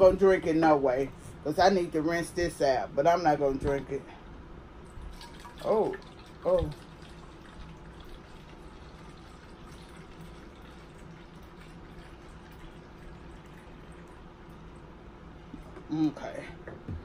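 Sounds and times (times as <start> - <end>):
water pouring into a bottle: 4.9 - 14.9.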